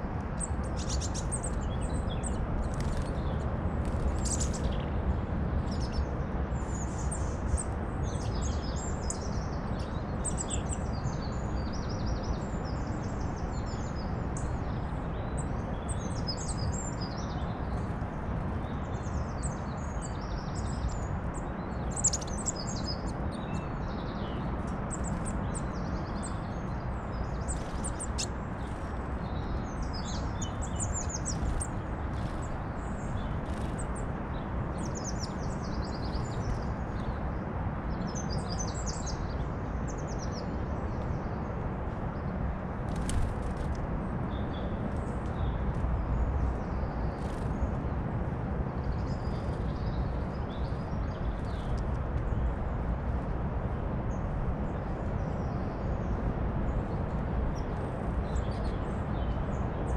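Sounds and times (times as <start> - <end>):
songbirds chirping and singing: 15.2 - 37.2.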